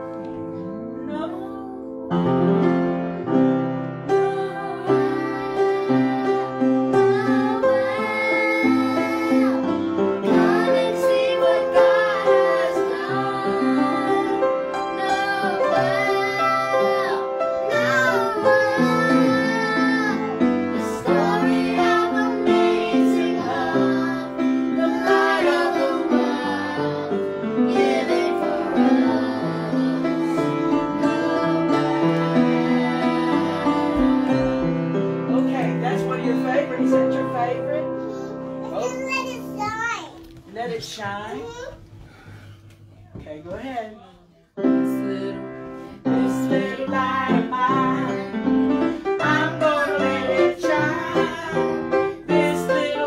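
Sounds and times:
instrumental accompaniment: 0.0 - 40.6
woman and children singing: 1.0 - 1.9, 4.0 - 35.4, 44.8 - 53.0.

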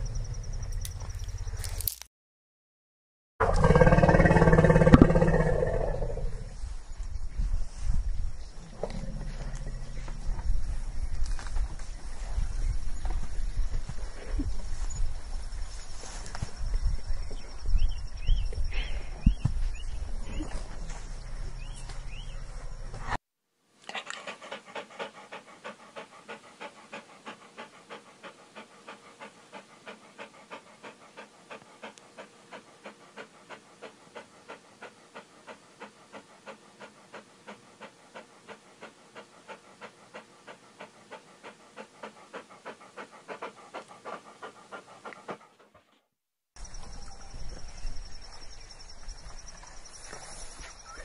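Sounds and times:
outdoor background noise: 0.0 - 2.1, 3.4 - 51.0
dog panting: 23.9 - 46.0.

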